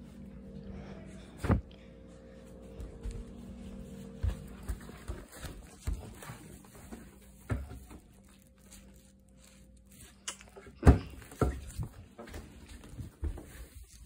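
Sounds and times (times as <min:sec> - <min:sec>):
footsteps on hardwood floor: 0:02.3 - 0:08.2, 0:10.8 - 0:14.0.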